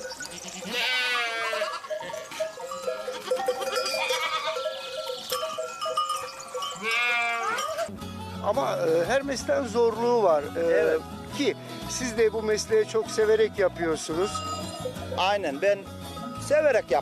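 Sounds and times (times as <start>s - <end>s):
goats bleating: 0.2s - 5.4s, 6.6s - 7.9s
background music: 7.9s - 17.0s.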